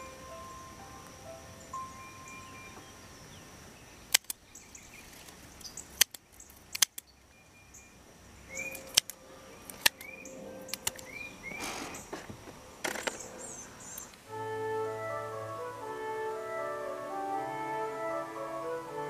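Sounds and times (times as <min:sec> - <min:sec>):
bird chirping: 0:00.0 - 0:19.0
scissors snipping: 0:08.7 - 0:10.1, 0:10.7 - 0:11.1.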